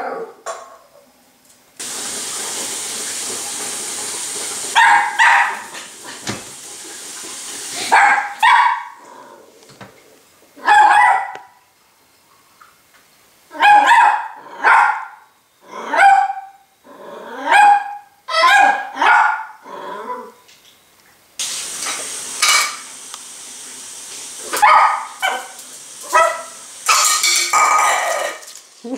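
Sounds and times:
puppy barking: 0:04.7 - 0:05.8, 0:07.8 - 0:09.0, 0:10.6 - 0:11.6, 0:13.5 - 0:15.2, 0:15.9 - 0:16.6, 0:17.5 - 0:19.6, 0:24.5 - 0:28.4.

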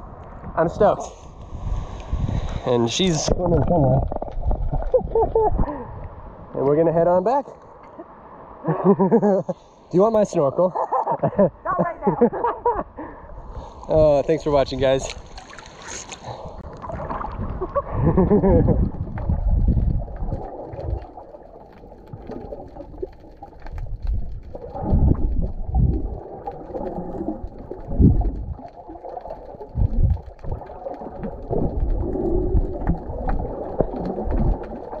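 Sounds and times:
muffled underwater sloshing: 0:14.6 - 0:35.0.

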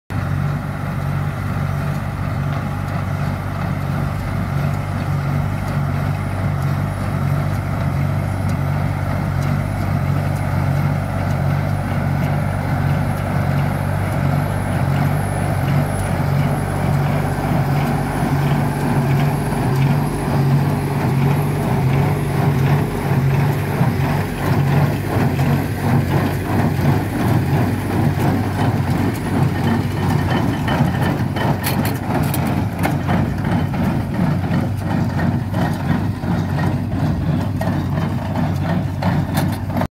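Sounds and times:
tractor diesel engine running: 0:00.1 - 0:39.9
baler rhythmic clatter: 0:01.8 - 0:39.9.

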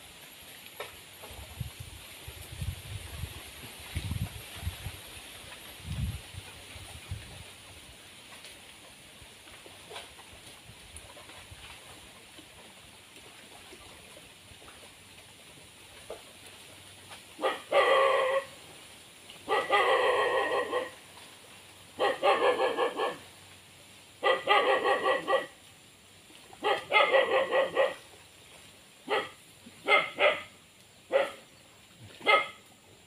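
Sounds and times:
dog barking: 0:17.4 - 0:18.4, 0:19.5 - 0:20.9, 0:22.0 - 0:23.2, 0:24.2 - 0:25.5, 0:26.6 - 0:28.0, 0:29.1 - 0:30.5, 0:31.1 - 0:31.4, 0:32.2 - 0:32.6.

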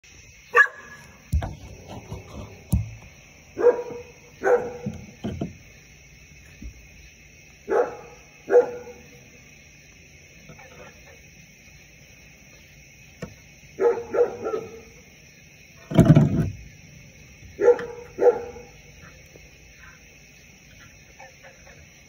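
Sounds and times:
dog barking: 0:00.5 - 0:01.0, 0:03.6 - 0:05.1, 0:07.6 - 0:09.2, 0:13.8 - 0:14.9, 0:17.6 - 0:19.2
dull knocks: 0:01.2 - 0:03.2, 0:04.6 - 0:05.8.

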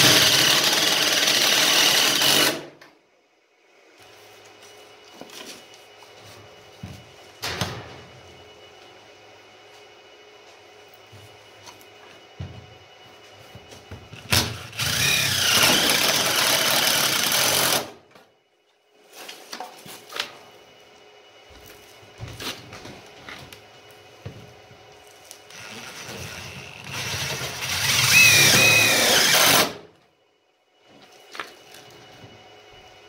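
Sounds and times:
power driver driving screws: 0:14.3 - 0:17.9, 0:25.5 - 0:29.8.

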